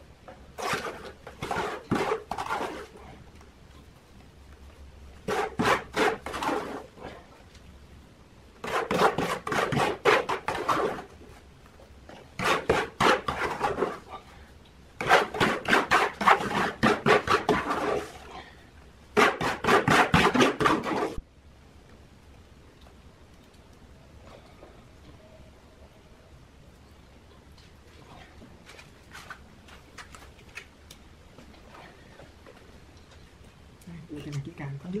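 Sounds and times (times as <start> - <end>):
trowel scraping wet mortar: 0.6 - 3.0, 5.2 - 7.0, 8.6 - 11.1, 12.2 - 14.1, 15.0 - 18.3, 19.2 - 21.2.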